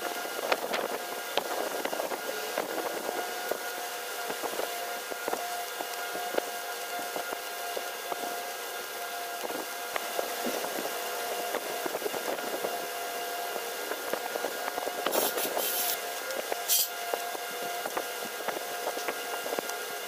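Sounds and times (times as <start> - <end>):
steady machine hum: 0.0 - 20.0
hissing bursts: 15.1 - 16.0.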